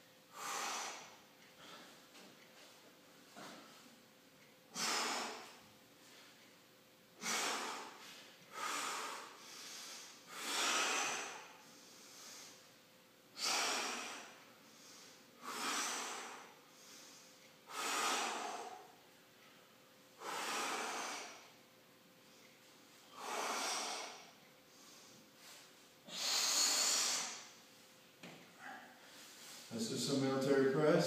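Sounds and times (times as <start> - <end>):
man breathing hard: 0.3 - 2.2, 4.7 - 6.4, 7.2 - 12.7, 13.3 - 19.1, 20.2 - 21.6, 22.2 - 27.6, 28.5 - 29.7.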